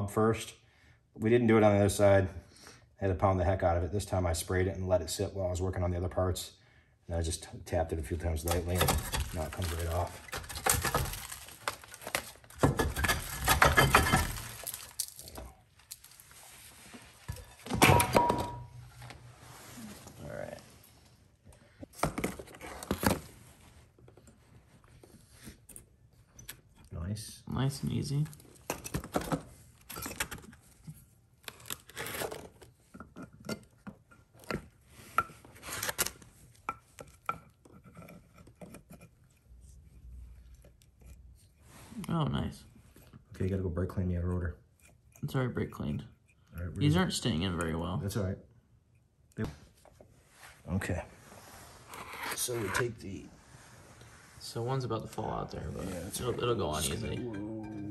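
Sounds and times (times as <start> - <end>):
metal scraping and rustling: 8.4 - 20.8.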